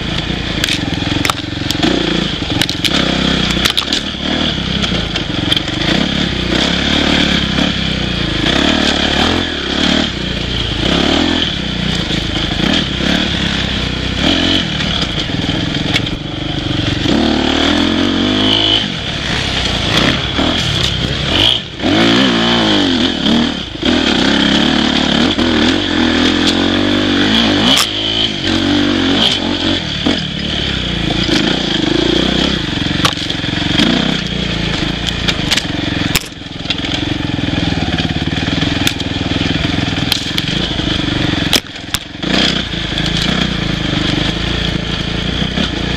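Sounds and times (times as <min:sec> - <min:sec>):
dirt bike engine revving: 0:00.0 - 0:45.9
bike clattering over bumps: 0:32.7 - 0:44.4.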